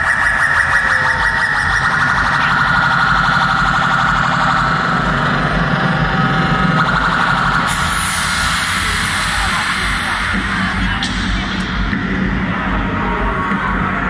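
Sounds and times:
electronic dance music: 0.0s - 14.0s
hiss: 7.7s - 10.8s.

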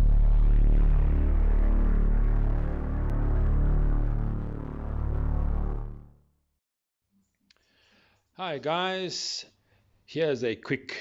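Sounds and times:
intro music with deep low tones: 0.0s - 6.3s.

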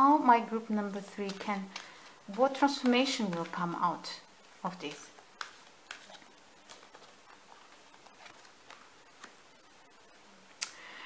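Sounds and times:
cards clicking and tapping: 0.8s - 9.7s.

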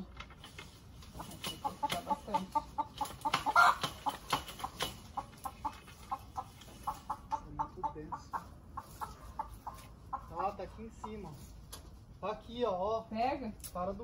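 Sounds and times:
chickens clucking: 0.0s - 12.2s
loud chicken call: 3.3s - 3.9s.

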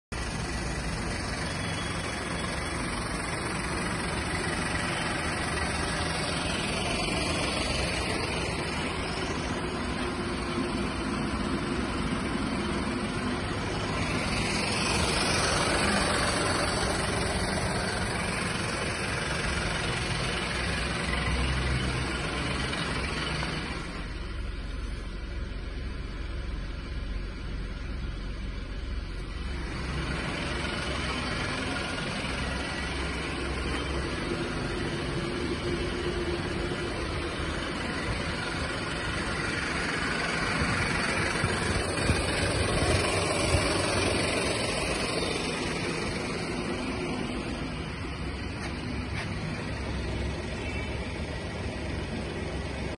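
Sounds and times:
car engine idling: 0.1s - 52.9s.

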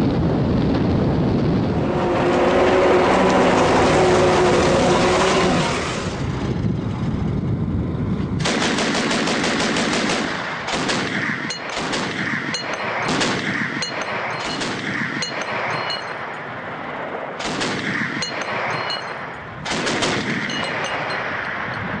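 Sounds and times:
armoured vehicle running: 0.0s - 9.0s, 11.2s - 22.0s
autocannon firing bursts: 8.4s - 16.3s, 17.4s - 21.4s.

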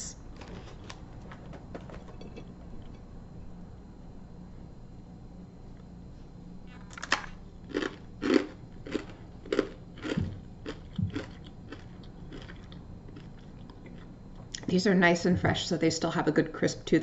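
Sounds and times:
chewing crunches: 7.1s - 14.7s.

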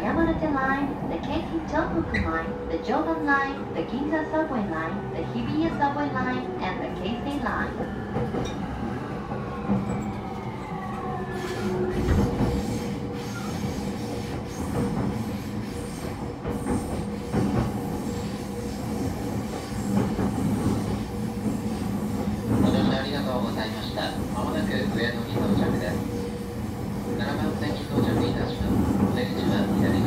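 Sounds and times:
train wheels rumbling: 0.0s - 30.0s.

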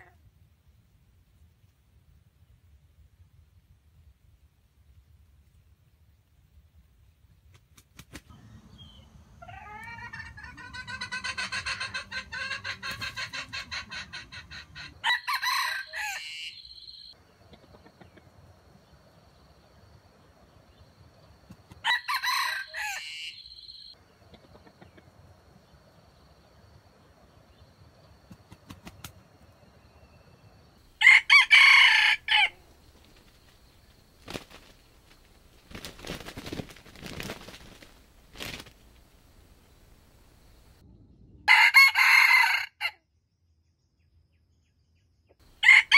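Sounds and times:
chicken clucking: 8.3s - 15.4s, 16.0s - 18.4s, 24.0s - 25.3s
rooster crowing: 9.4s - 17.0s, 21.8s - 23.9s, 30.9s - 32.6s, 41.5s - 43.0s, 45.6s - 45.9s
rustling: 32.6s - 40.8s.

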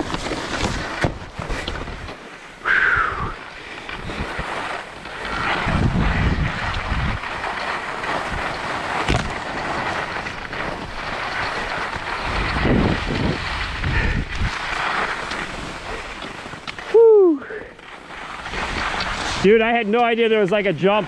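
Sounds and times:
wind rushing over microphone: 0.0s - 16.2s
skis sliding on snow: 0.0s - 21.0s.

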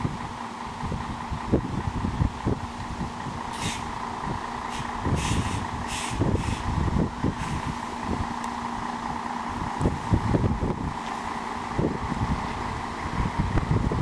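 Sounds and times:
bus diesel engine idling: 0.0s - 14.0s
wind buffeting microphone: 0.0s - 14.0s
air hissing: 3.5s - 4.0s, 4.7s - 6.7s, 7.3s - 7.9s.

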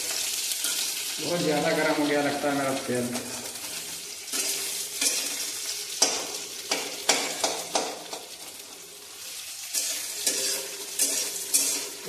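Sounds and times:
vegetables sizzling in oil: 0.0s - 12.0s
metal spatula scraping pan: 4.3s - 6.1s, 9.6s - 12.0s.

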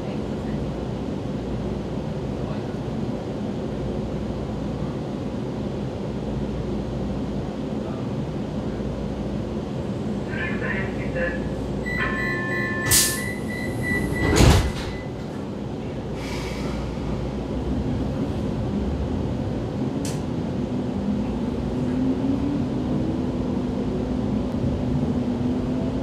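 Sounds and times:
train rumble: 0.0s - 26.0s
door warning tone: 11.8s - 15.2s
sliding doors shutting: 12.1s - 15.4s.

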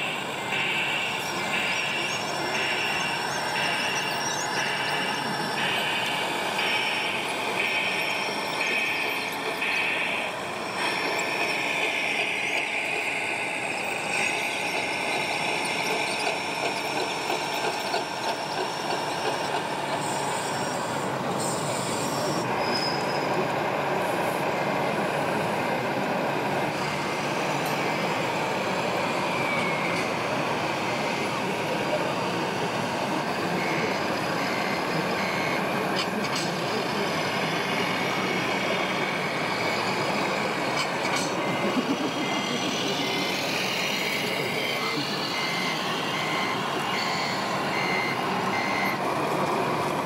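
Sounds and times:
hall noise: 0.0s - 22.6s, 23.2s - 50.0s
model loader tracks squealing: 0.0s - 23.5s, 33.3s - 49.0s.

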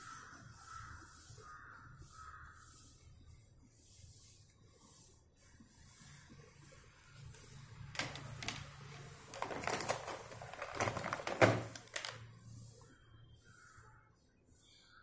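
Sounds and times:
marker strokes on paper: 0.0s - 9.3s, 12.2s - 15.0s
marker pens clicking and rattling: 8.0s - 12.3s.

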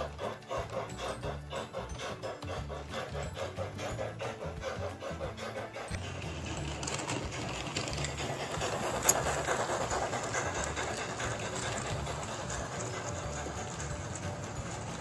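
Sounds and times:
model train motor whirr: 0.0s - 15.0s.

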